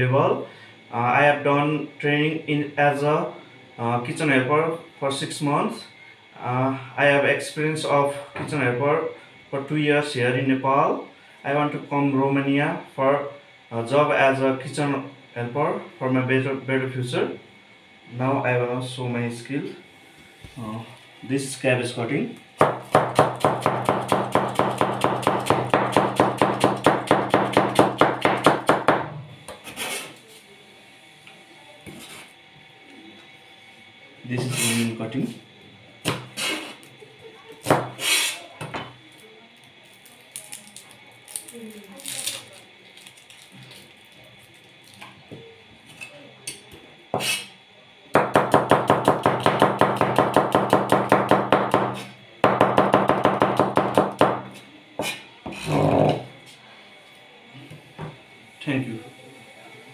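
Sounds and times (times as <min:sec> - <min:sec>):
knife chopping on plastic board: 0:22.6 - 0:29.7
knife chopping onion on board: 0:22.6 - 0:30.1, 0:36.0 - 0:36.6, 0:37.6 - 0:38.8, 0:47.2 - 0:47.5, 0:48.2 - 0:55.6
knife scraping board: 0:29.5 - 0:30.3, 0:31.8 - 0:32.3, 0:34.4 - 0:34.9, 0:36.1 - 0:36.9, 0:37.7 - 0:38.4, 0:47.1 - 0:47.6, 0:55.0 - 0:56.2.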